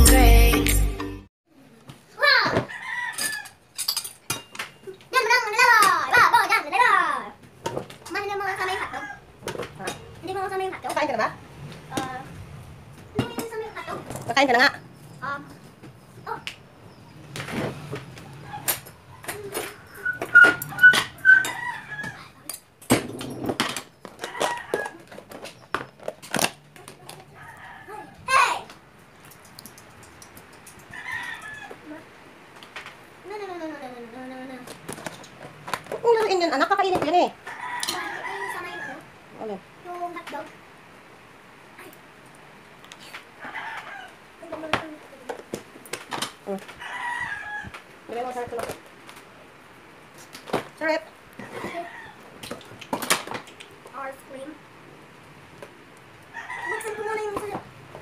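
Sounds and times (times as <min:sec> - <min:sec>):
chicken calling: 0:18.3 - 0:22.3.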